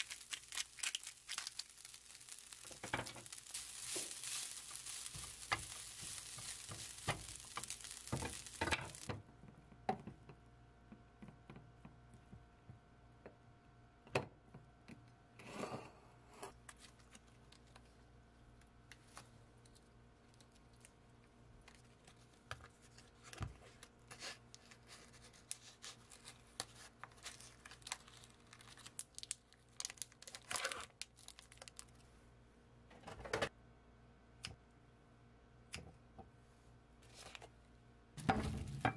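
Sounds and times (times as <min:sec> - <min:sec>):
plastic wrapper tearing and crinkling: 0:00.0 - 0:09.1, 0:24.5 - 0:32.0.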